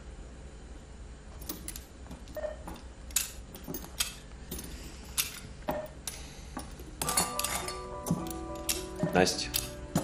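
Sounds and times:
steady low hum: 0.0s - 10.0s
metal instruments clinking: 1.3s - 10.0s.

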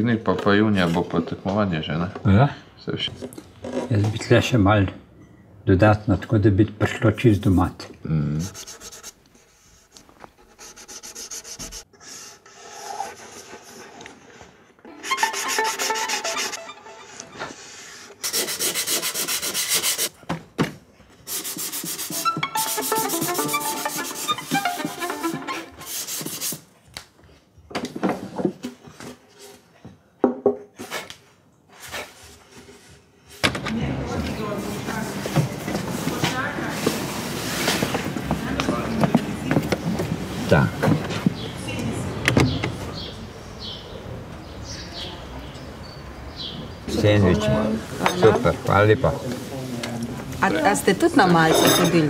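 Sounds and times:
sanding wooden violin body: 8.4s - 9.8s, 10.4s - 13.9s, 15.0s - 20.1s, 21.3s - 26.6s.

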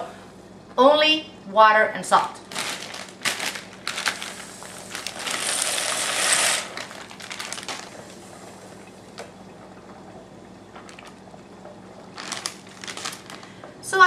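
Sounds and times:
pasta pouring into pot: 2.6s - 8.3s.

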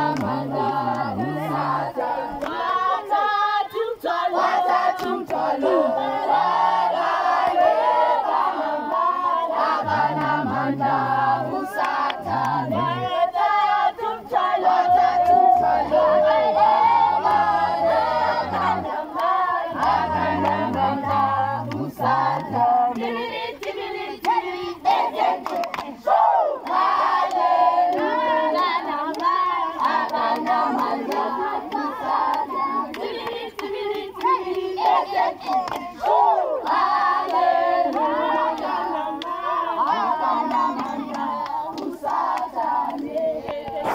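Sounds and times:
hands clapping: 0.0s - 1.6s, 2.3s - 2.6s, 4.9s - 5.5s, 9.8s - 10.6s, 11.7s - 13.0s, 14.9s - 16.1s, 16.8s - 24.4s, 25.4s - 43.9s
group singing in chorus: 0.0s - 43.9s.

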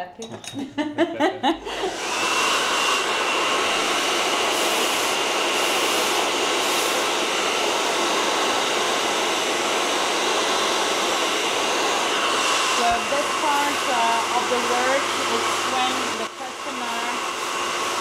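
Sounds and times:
hair dryer blowing: 1.4s - 18.0s.

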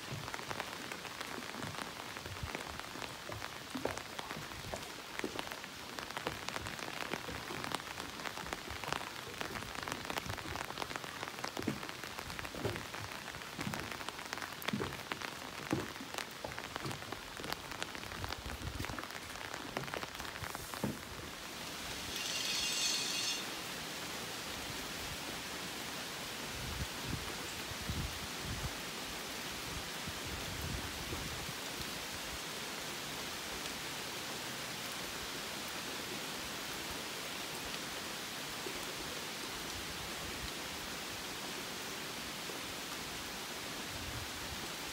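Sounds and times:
rain with raindrop taps: 0.0s - 44.9s
high-pitched hiss: 21.6s - 23.8s.

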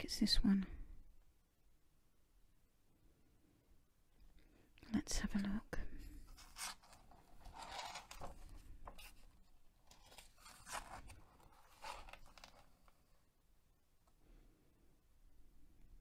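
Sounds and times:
paper pages rustling: 6.3s - 13.2s.

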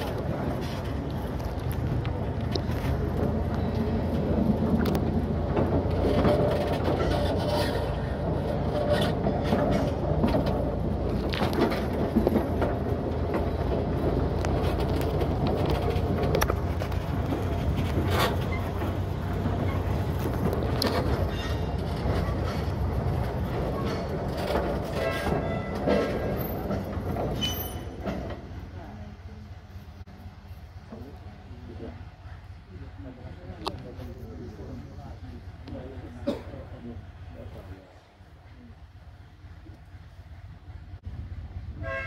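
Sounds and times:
wheels clicking over rail joints: 0.0s - 29.0s
train running low rumble: 0.0s - 42.0s.

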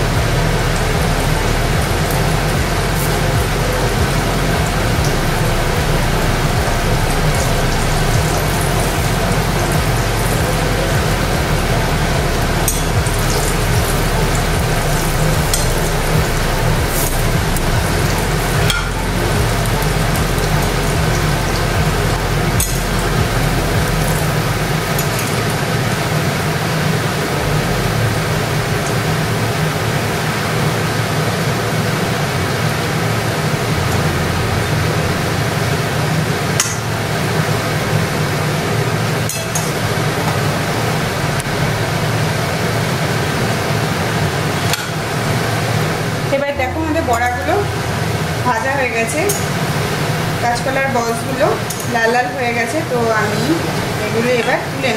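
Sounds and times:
food sizzling in frying oil: 46.5s - 54.9s.

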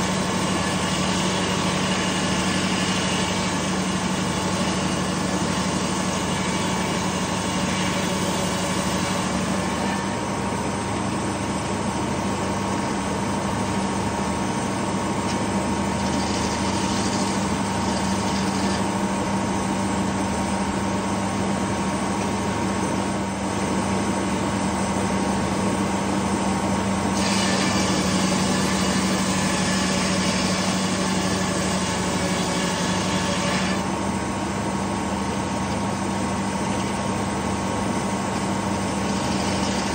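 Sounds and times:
saw blade hissing through log: 0.0s - 10.2s, 15.9s - 19.1s, 27.1s - 33.9s, 38.7s - 39.9s.

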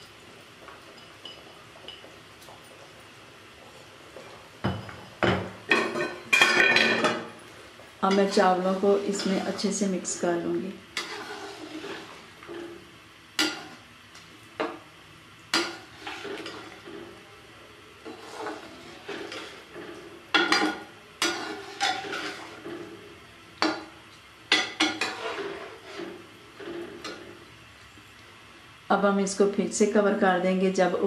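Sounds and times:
spoon sloshing and scraping: 11.0s - 12.6s, 15.8s - 17.1s, 18.0s - 22.9s, 24.9s - 27.2s.

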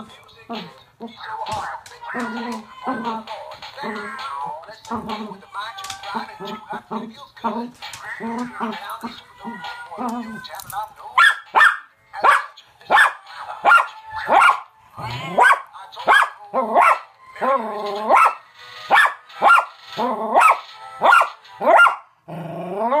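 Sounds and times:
toy cat singing: 0.0s - 12.3s
dog barking: 11.2s - 14.7s, 15.4s - 17.0s, 18.1s - 19.7s, 20.4s - 22.1s.

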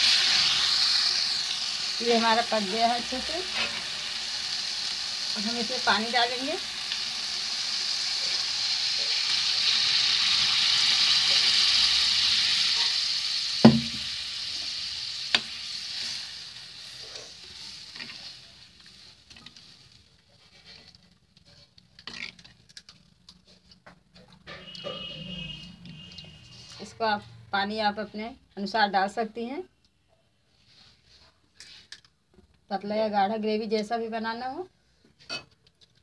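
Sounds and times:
water sizzling in hot pan: 0.0s - 22.5s
metal ladle knocking pan: 13.6s - 14.1s.

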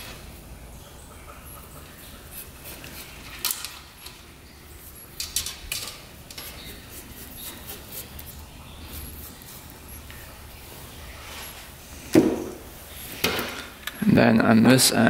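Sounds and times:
small metal parts clicking and scraping: 5.0s - 6.9s.

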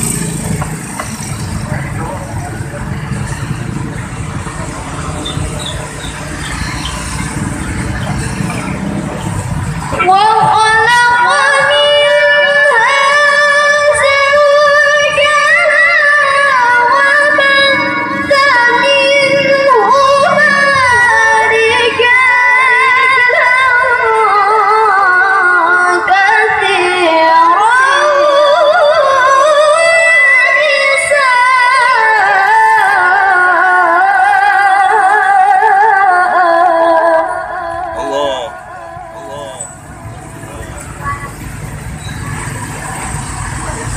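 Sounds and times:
woman reciting melodically: 10.0s - 39.6s.

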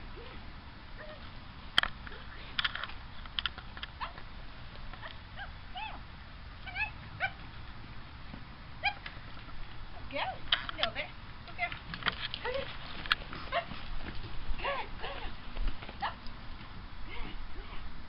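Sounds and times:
dog yipping and whining: 6.7s - 7.4s.

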